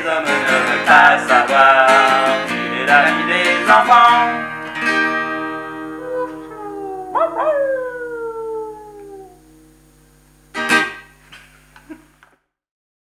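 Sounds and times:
man imitating dog howl: 6.0 - 9.4.

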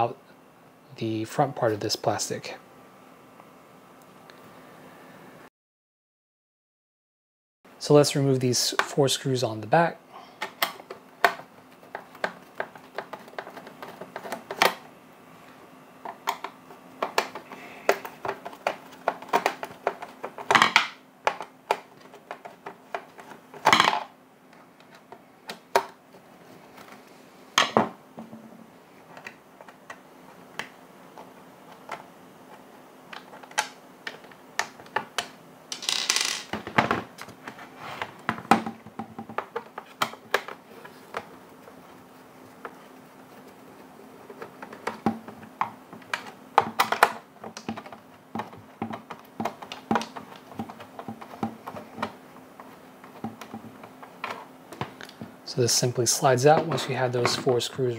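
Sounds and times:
parts clacking on wooden table: 35.7 - 37.0.

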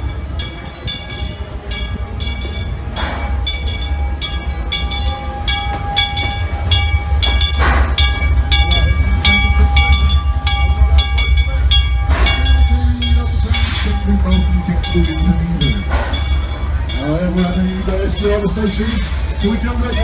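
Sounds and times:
locomotive bell ringing: 0.0 - 20.0
steam locomotive rumbling: 0.0 - 20.0
steam hissing: 11.9 - 16.6, 17.2 - 19.9.

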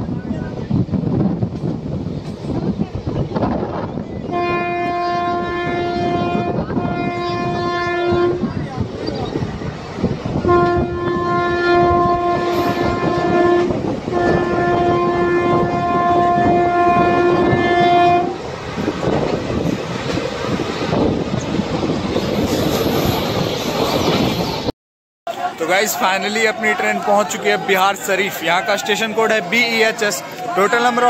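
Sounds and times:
train coaches rumbling: 0.0 - 24.7, 25.3 - 31.0
locomotive horn blasts: 4.3 - 8.5, 10.4 - 18.5.

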